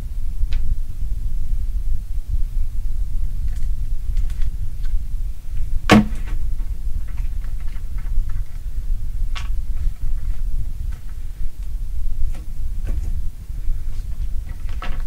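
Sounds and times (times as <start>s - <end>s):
sharp knock: 5.9s - 6.3s.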